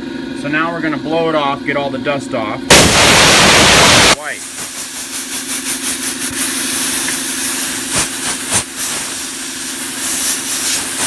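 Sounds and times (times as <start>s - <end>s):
compressed air blow gun hissing: 2.7s - 11.0s.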